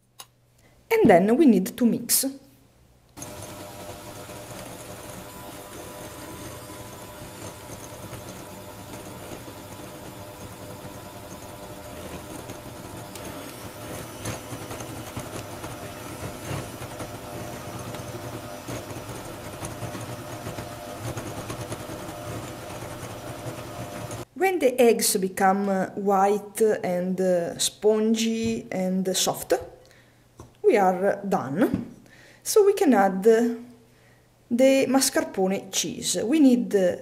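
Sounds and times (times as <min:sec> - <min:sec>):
electric hand mixer running: 0:03.2 - 0:24.3.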